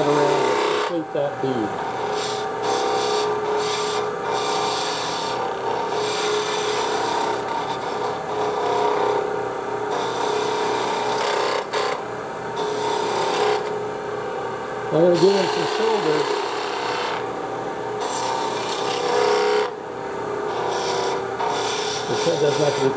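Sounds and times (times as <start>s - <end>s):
gouge scraping wood on lathe: 0.0s - 1.0s, 1.7s - 9.3s, 9.9s - 12.0s, 12.6s - 13.7s, 15.2s - 17.2s, 18.0s - 19.7s, 20.5s - 22.9s
lathe humming: 0.0s - 22.9s.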